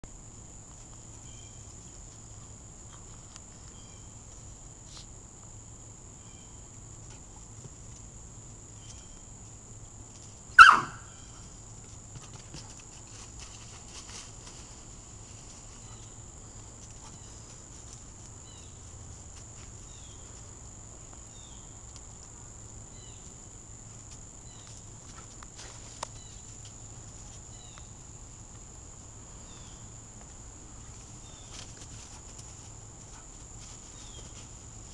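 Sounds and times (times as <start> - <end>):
faint insect chirps: 0.1 - 34.9
dog yelp: 10.6 - 11.1.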